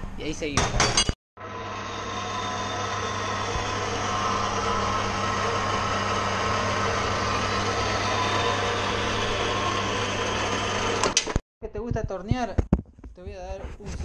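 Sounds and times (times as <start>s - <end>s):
band saw running: 1.4s - 11.4s.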